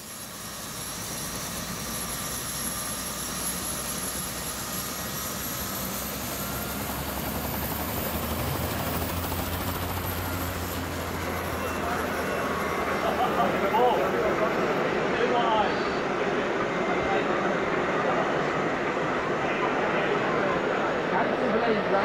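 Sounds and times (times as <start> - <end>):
thin high whine: 8.1 - 21.8.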